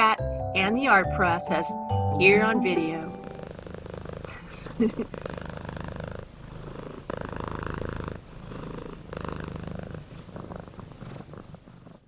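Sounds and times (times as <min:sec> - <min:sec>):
cat purring: 0:02.8 - 0:12.0.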